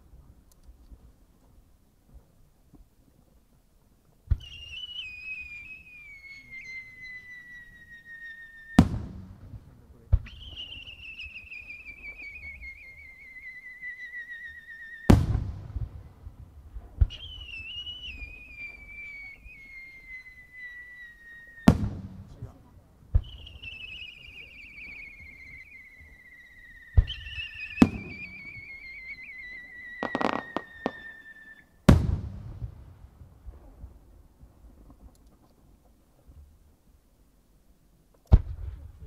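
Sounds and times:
firework whistle sliding down: 4.3 - 9.0, 10.2 - 15.6, 17.0 - 21.9, 23.2 - 31.7
firework mortar launch thump: 8.8 - 10.7, 15.1 - 17.5, 21.6 - 22.5, 23.1 - 23.7, 26.9 - 28.6, 30.0 - 31.0, 31.9 - 34.0, 38.3 - 39.0
firework bursting bang: 8.8 - 10.9, 15.1 - 18.9, 21.6 - 22.5, 26.9 - 29.0, 29.6 - 31.1, 31.9 - 33.7.

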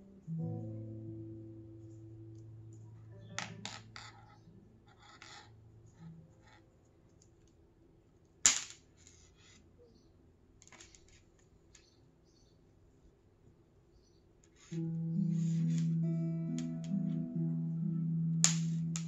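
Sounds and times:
cable rustling and rubbing: 8.9 - 9.7, 14.4 - 16.0.

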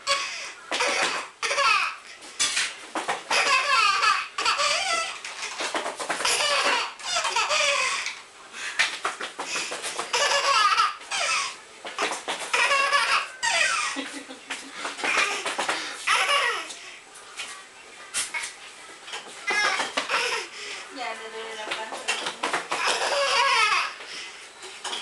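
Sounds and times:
toddler laughing: 0.0 - 2.0, 3.3 - 8.2, 10.0 - 16.7, 19.5 - 20.5, 22.7 - 24.0.

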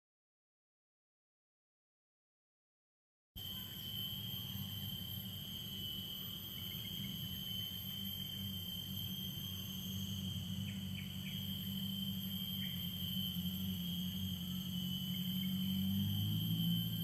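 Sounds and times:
insects droning: 3.4 - 17.0
low steady hum: 3.5 - 17.0.

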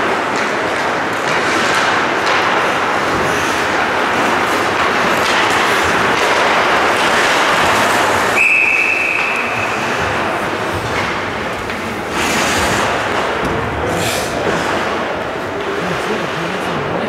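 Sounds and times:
skates scraping on ice: 0.0 - 16.8
referee's whistle blast: 8.4 - 9.6.

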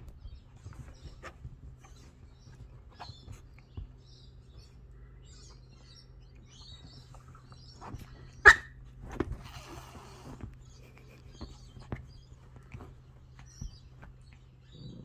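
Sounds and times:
soft rustles: 0.0 - 15.0
puppy yelp: 8.3 - 8.8.

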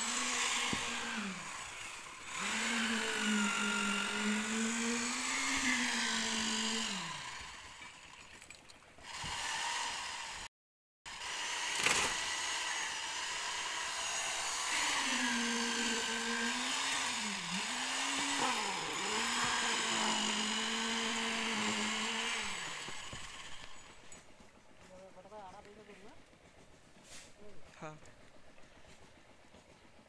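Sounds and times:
concrete vibrator motor whine: 0.0 - 8.2, 11.1 - 26.3.

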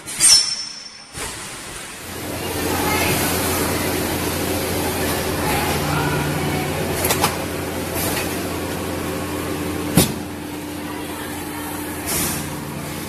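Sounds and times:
sharp machine clack: 0.0 - 2.1
packaging machine humming: 1.0 - 13.0.

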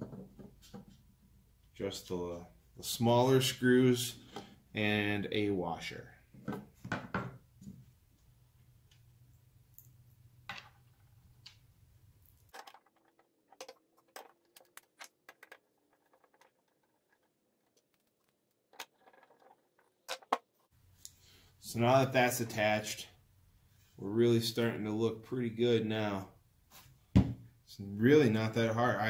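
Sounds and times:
small parts clicking and tapping: 9.7 - 21.2.

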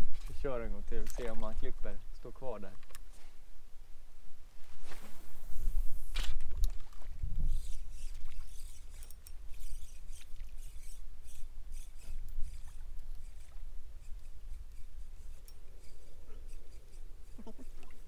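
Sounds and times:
fishing reel clicking: 7.4 - 17.4.

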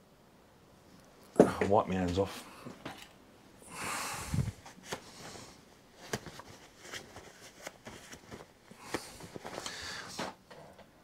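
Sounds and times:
cloth rag rustling: 4.3 - 10.2.

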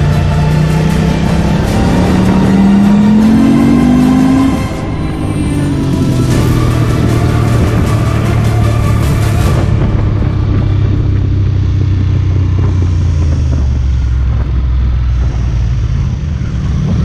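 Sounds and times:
motorcycle engine running: 0.0 - 17.0
wind noise on microphone: 0.0 - 17.0.

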